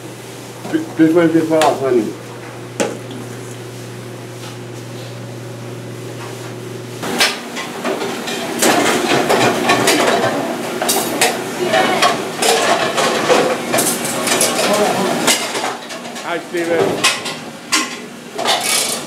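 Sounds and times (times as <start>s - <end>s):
dishes clattering and clanking: 7.0s - 19.0s.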